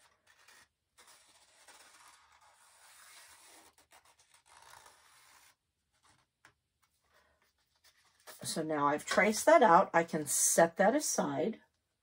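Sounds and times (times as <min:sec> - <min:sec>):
marker scratching on plastic: 0:00.0 - 0:06.2.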